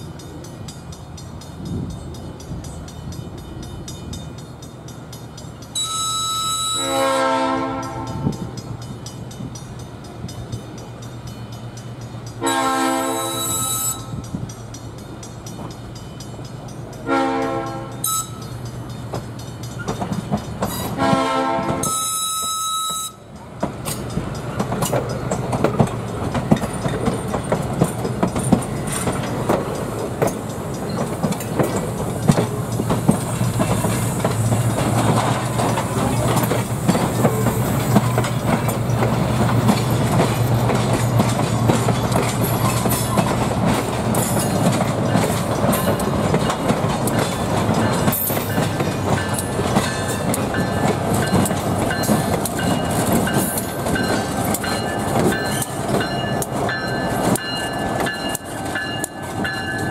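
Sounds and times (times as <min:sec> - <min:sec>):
train wheels clicking over rail joints: 0:00.0 - 0:59.9
locomotive air horn blasts: 0:05.8 - 0:08.4, 0:12.4 - 0:14.2, 0:17.0 - 0:18.4, 0:20.8 - 0:23.2.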